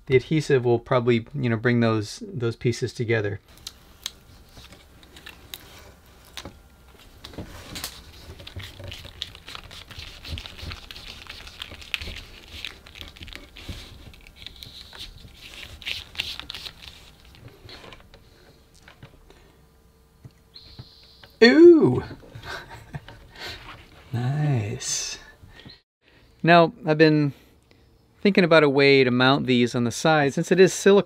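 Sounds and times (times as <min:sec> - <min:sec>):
silicone strip crinkling and rubbing: 0:03.5 - 0:18.1.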